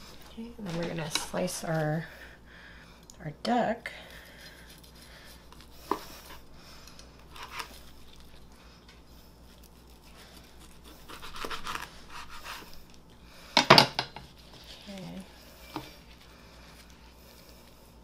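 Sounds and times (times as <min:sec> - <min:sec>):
knife slicing through crisp skin: 0:07.3 - 0:08.3, 0:09.4 - 0:12.7.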